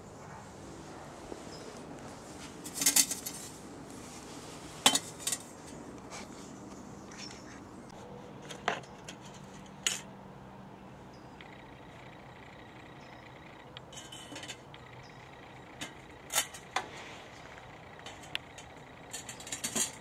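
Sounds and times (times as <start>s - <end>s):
thin steel parts clanking: 2.6s - 3.6s, 4.8s - 5.6s, 8.4s - 10.1s, 13.8s - 17.0s, 17.9s - 20.0s.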